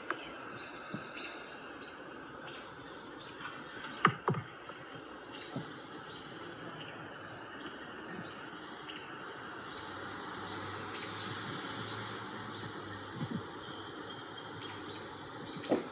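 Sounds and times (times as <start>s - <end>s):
low steady hum: 0.0s - 15.9s
outdoor background hiss: 0.0s - 15.9s.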